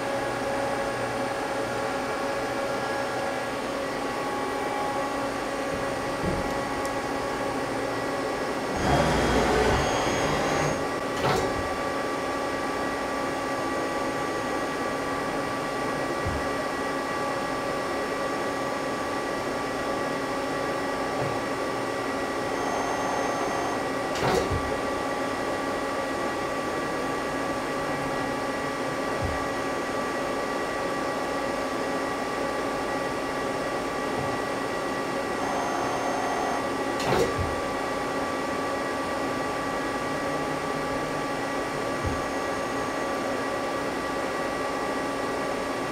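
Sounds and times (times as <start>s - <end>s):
lathe humming: 1.1s - 10.9s
machine clunks: 8.8s - 11.8s, 16.2s - 16.6s, 24.1s - 24.8s, 37.0s - 37.7s.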